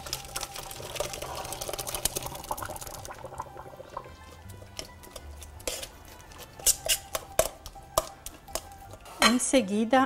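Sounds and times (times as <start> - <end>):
liquid pouring into a metal sieve: 0.0 - 4.4.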